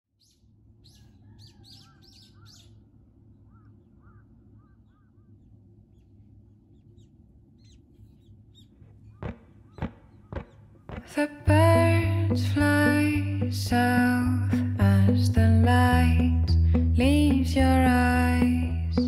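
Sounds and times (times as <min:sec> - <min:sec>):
soft bird chirps: 0:00.1 - 0:11.1
birds calling: 0:00.2 - 0:11.3
sharp knock: 0:09.2 - 0:11.1
low steady rumble: 0:11.5 - 0:19.0.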